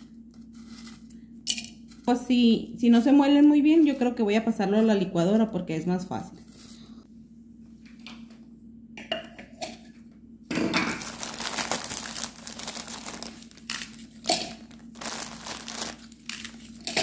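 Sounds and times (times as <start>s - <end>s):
cookies clinking in plastic bowl: 10.8s - 17.0s
plastic packaging crinkling: 10.8s - 17.0s.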